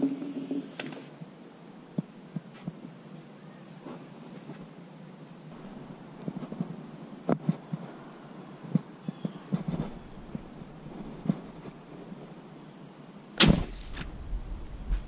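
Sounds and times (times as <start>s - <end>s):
insects trilling: 0.0s - 15.0s
rustling: 9.1s - 12.3s.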